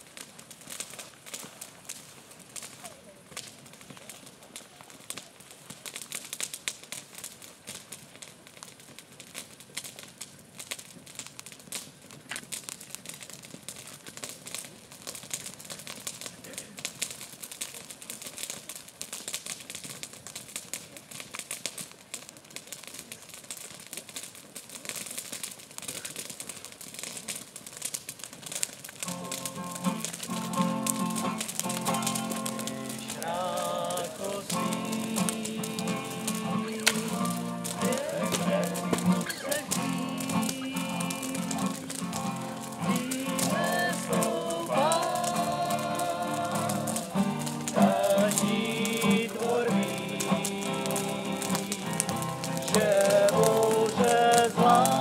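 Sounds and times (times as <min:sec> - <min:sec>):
bonfire crackling: 0:00.0 - 0:55.0.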